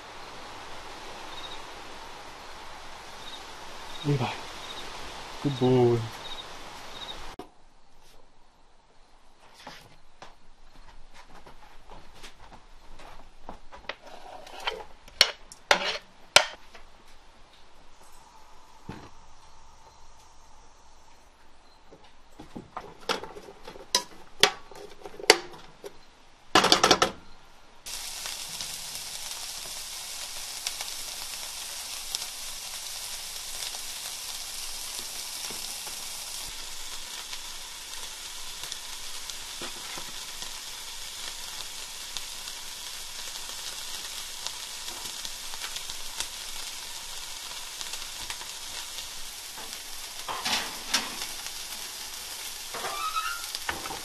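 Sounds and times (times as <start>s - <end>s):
vegetables sizzling in a frying pan: 0.0s - 7.4s, 27.9s - 54.0s.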